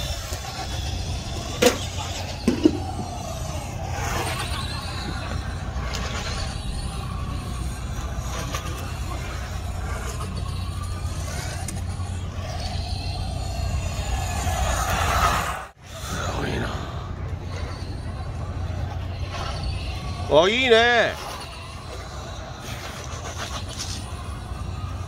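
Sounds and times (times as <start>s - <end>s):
model car motor whine: 0.0s - 15.1s
low rumble: 0.0s - 25.0s.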